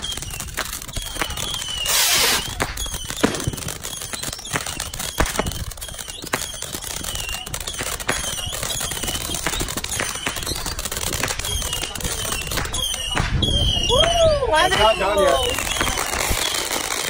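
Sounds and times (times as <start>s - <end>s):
firework cracks and pops: 0.0s - 17.0s
firework falling whistles: 0.0s - 17.0s
hiss of sparks: 0.5s - 4.0s.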